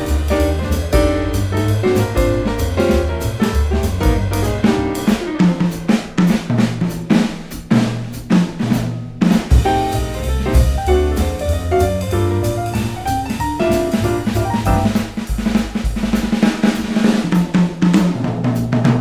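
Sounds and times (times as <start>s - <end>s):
double bass line: 0.0s - 5.7s, 9.5s - 16.2s
piano chords: 0.0s - 6.1s, 9.5s - 15.8s
drum and cymbal hits: 0.0s - 19.0s.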